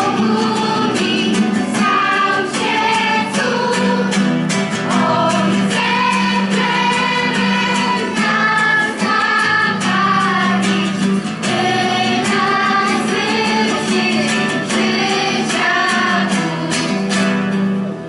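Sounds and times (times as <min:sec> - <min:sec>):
children's choir singing a hymn: 0:00.0 - 0:17.6
strummed acoustic guitars: 0:00.0 - 0:18.0.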